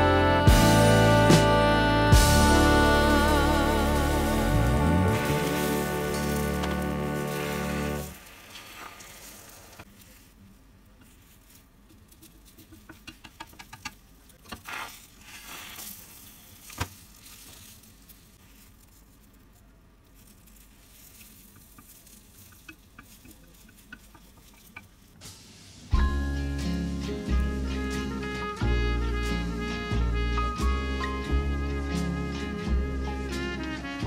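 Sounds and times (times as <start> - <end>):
egg sizzling in a pan: 2.2 - 10.0.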